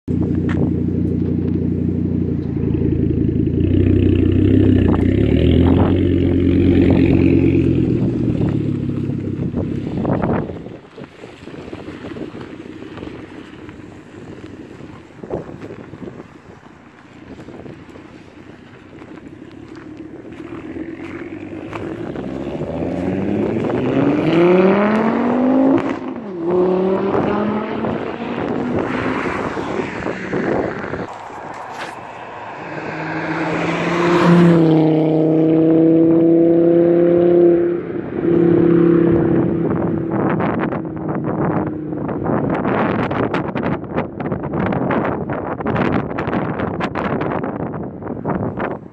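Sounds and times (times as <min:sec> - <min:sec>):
car engine revving: 0:00.1 - 0:10.4, 0:18.9 - 0:43.4.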